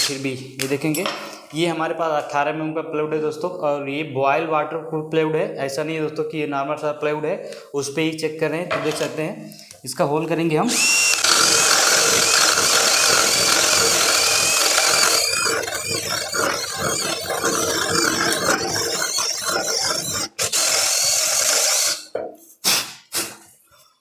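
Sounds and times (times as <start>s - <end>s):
drill boring through wood: 10.7s - 22.1s.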